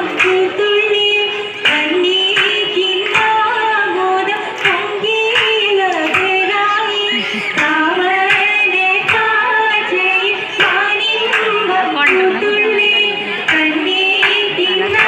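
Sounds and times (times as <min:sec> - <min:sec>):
group hand claps: 0:00.0 - 0:15.0
women singing together: 0:00.0 - 0:15.0.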